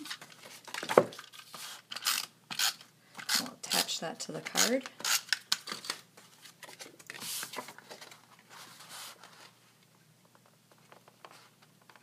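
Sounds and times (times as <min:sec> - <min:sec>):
paper rustling: 0:05.7 - 0:09.6.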